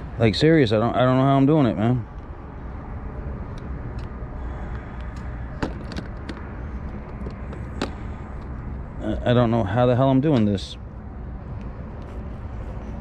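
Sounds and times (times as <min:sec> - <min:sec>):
low outdoor background rumble: 0:00.0 - 0:13.0.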